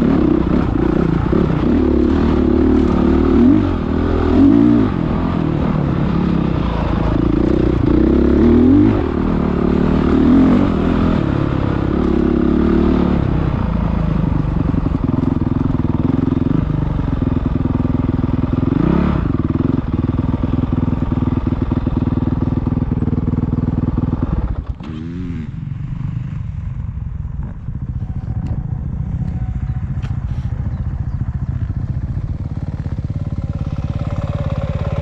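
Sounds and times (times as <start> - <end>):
dirt bike engine revving: 0.0 - 22.7, 23.4 - 35.0.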